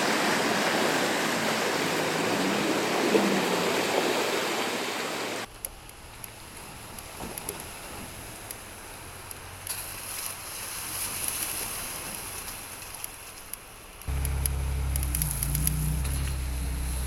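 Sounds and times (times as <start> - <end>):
tyres on dirt and gravel: 5.4 - 17.0
low engine drone: 14.1 - 17.0.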